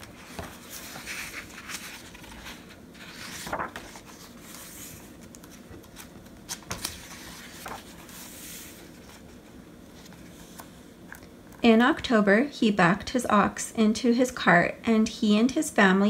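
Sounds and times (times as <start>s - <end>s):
pages swishing and rustling: 0.0s - 10.9s.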